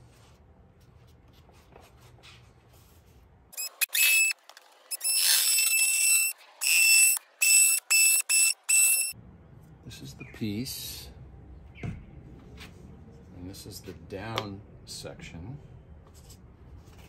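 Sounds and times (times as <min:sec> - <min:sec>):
oscillating multi-tool cutting cardboard: 0:03.6 - 0:09.1.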